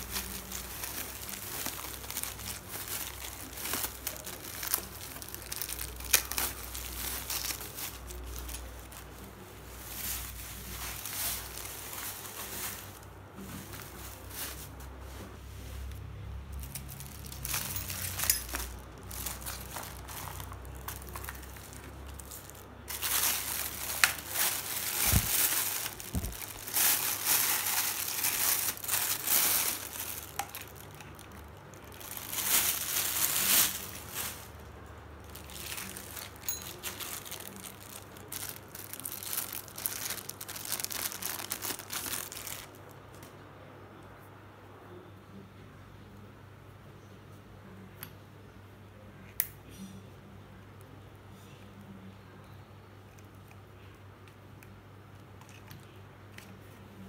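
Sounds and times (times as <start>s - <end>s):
plastic packaging crinkling: 0.0s - 14.8s, 16.5s - 43.3s.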